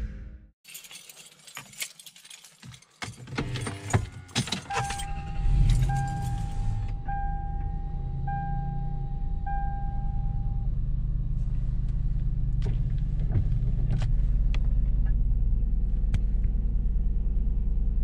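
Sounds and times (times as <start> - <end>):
car engine rumble inside cabin: 3.2 - 18.0
electronic beeps: 4.4 - 10.6.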